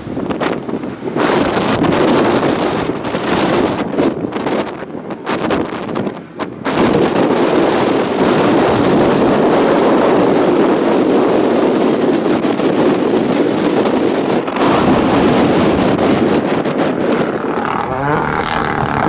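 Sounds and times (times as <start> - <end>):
rally car engine passing by: 17.2 - 19.0.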